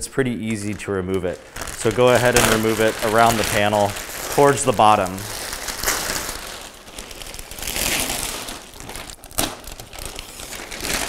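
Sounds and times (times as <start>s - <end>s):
sharp crack: 0.0s - 6.4s
plastic wrap crinkling: 0.0s - 11.0s.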